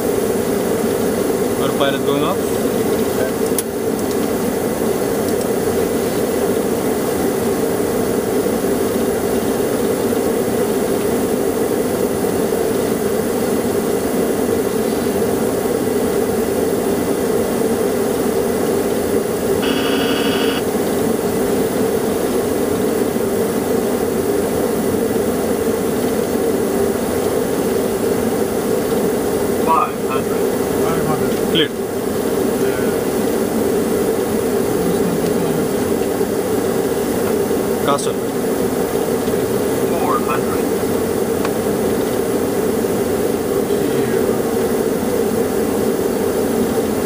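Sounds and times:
jet airflow and engine drone: 0.0s - 47.0s
short electronic beep: 19.6s - 20.6s.

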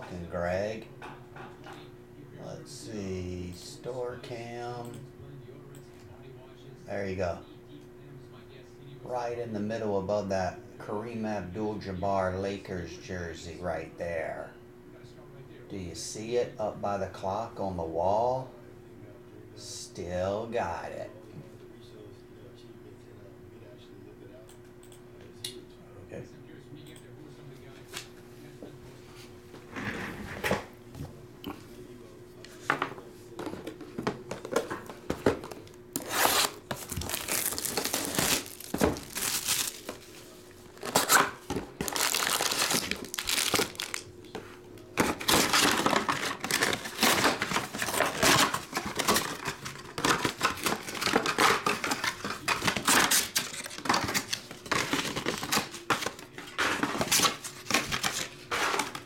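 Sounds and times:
foil packs crinkling: 34.4s - 44.1s, 45.0s - 59.0s
box tearing open: 36.0s - 39.9s, 40.8s - 44.0s, 45.0s - 59.0s.

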